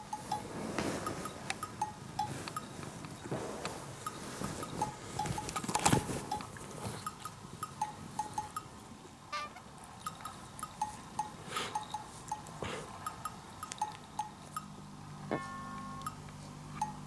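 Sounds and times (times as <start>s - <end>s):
fabric rustling: 0.0s - 1.6s, 2.2s - 7.1s
plinking bell-like background music: 15.4s - 17.0s.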